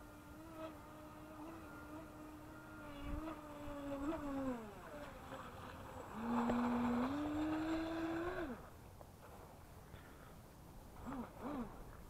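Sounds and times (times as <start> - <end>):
electric motor whining: 0.0 - 8.7, 11.0 - 11.8.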